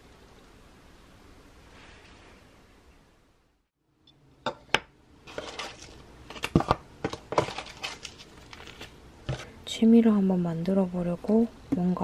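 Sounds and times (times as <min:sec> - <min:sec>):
plastic rustling: 0:05.2 - 0:09.6.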